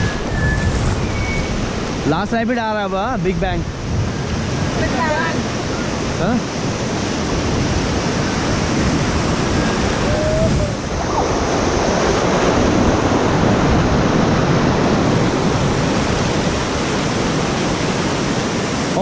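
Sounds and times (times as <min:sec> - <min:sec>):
whitewater rapids rushing: 0:04.6 - 0:19.0.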